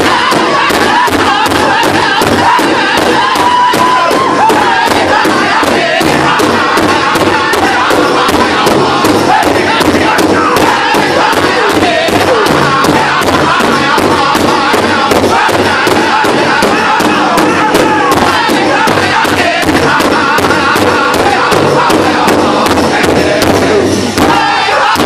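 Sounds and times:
drum group singing in unison: 0:00.0 - 0:25.0
large hide drum beating: 0:00.0 - 0:25.0.

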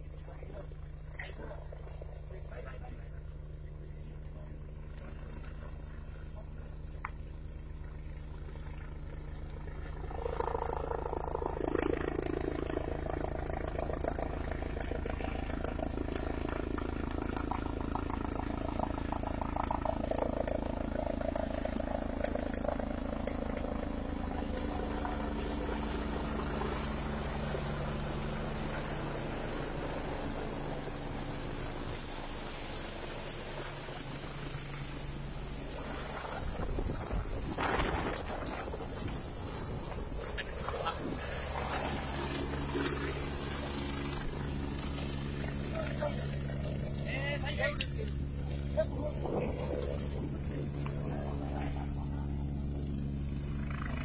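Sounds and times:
distant helicopter rotor drone: 0:00.0 - 0:54.0.

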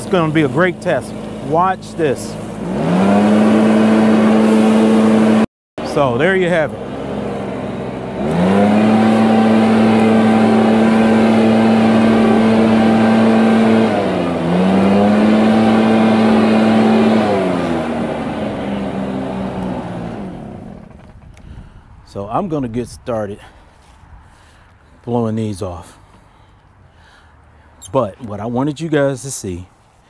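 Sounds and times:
leaf blower engine whine: 0:00.0 - 0:22.5.

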